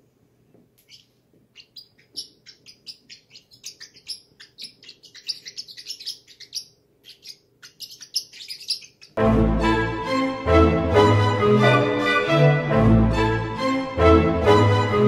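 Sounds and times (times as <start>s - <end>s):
parrot chick chirping: 0.8s - 9.2s.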